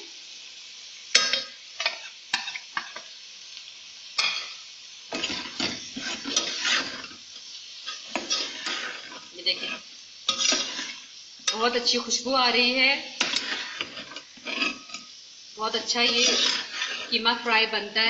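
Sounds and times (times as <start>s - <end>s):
meat sizzling: 0.0s - 18.0s
metal spoon scraping pot: 5.2s - 7.1s, 7.9s - 11.6s, 13.2s - 15.1s, 16.0s - 17.2s.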